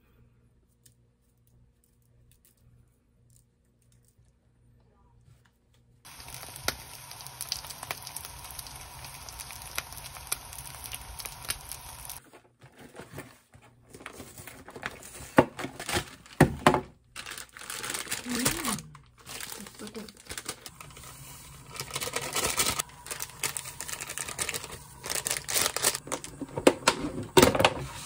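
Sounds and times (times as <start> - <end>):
steady hiss: 6.1 - 12.2
crinkling and tearing packaging: 13.9 - 26.9.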